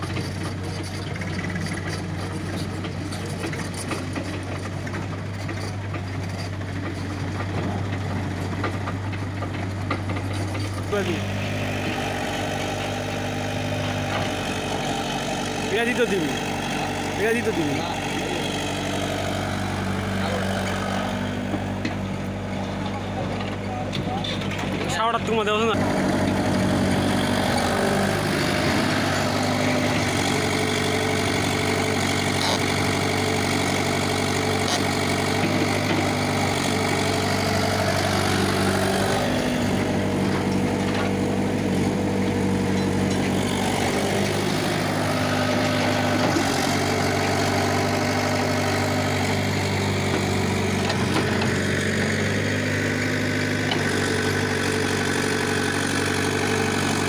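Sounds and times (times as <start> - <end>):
excavator diesel engine running: 0.0 - 57.0.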